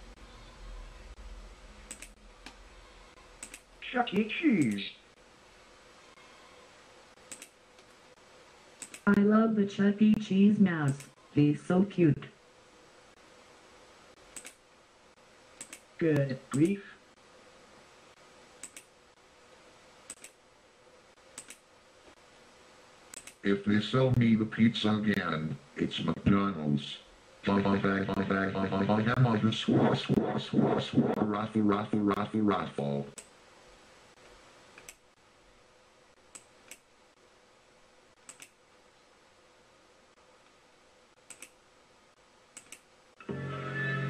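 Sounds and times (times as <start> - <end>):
faint steady hum: 0.0 - 43.8
quick sharp clicks: 1.9 - 2.6, 3.4 - 3.7, 7.3 - 7.6, 8.8 - 9.1, 14.3 - 14.6, 18.6 - 18.9, 20.1 - 20.4, 21.4 - 21.6, 23.1 - 23.4, 38.2 - 38.6, 41.2 - 41.6, 42.6 - 42.9.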